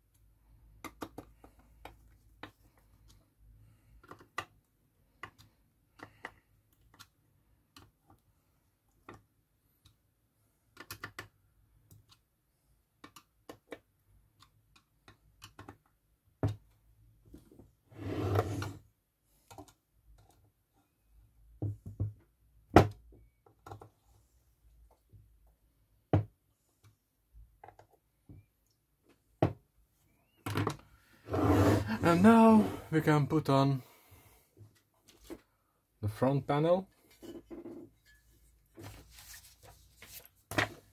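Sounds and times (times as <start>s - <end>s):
rustling noise: 38.2s - 40.9s.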